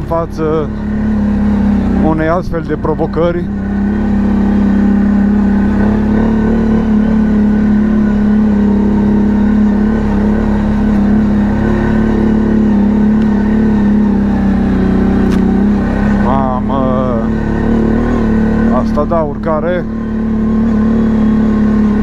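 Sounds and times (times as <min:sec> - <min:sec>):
atv engine running: 0:00.0 - 0:22.0
brief click: 0:15.3 - 0:15.5.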